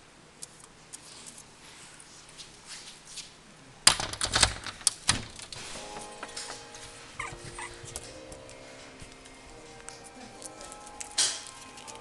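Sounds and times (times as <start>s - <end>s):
puppy clattering scrabble: 7.2s - 8.1s.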